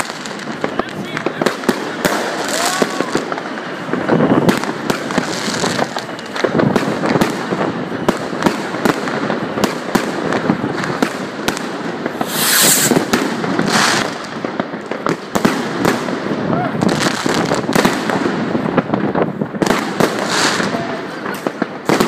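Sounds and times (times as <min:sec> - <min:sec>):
fireworks bangs and crackles: 0:00.0 - 0:22.0
fireworks hissing rushes: 0:12.0 - 0:14.4.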